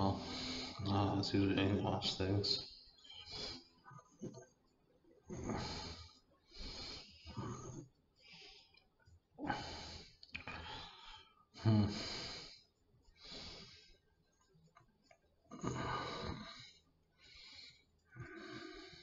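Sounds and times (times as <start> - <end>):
man breathing: 0.0 - 1.2, 2.6 - 4.4, 5.3 - 8.8, 9.4 - 14.1, 15.5 - 19.0.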